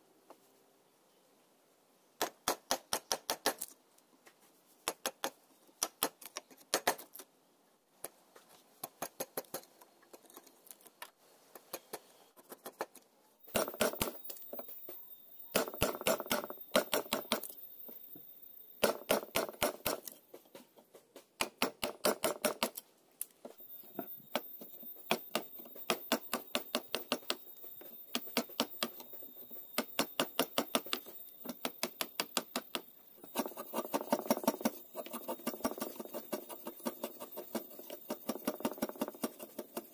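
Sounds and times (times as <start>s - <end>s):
chisel scraping and crackling wood: 8.1s - 14.8s, 24.6s - 39.9s.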